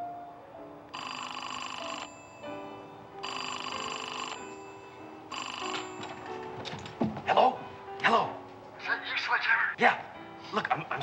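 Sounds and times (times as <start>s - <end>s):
soft background music: 0.0s - 11.0s
payphone electric bell ringing: 0.9s - 6.4s.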